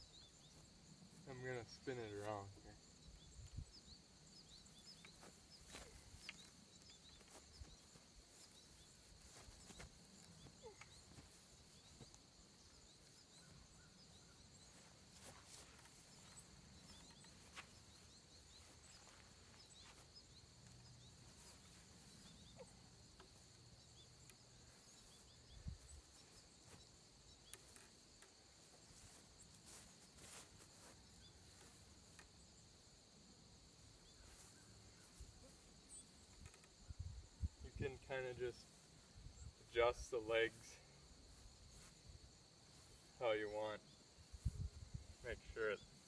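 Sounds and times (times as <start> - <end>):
high-pitched insect chorus: 0.0 - 46.0.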